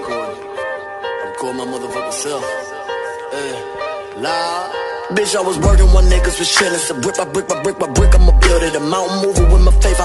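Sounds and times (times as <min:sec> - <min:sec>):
rapping over a beat: 0:00.0 - 0:10.0.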